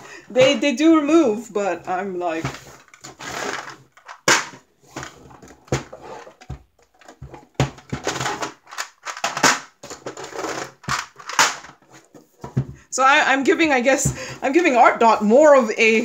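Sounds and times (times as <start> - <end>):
plastic cases knocking on table: 4.2 - 8.6.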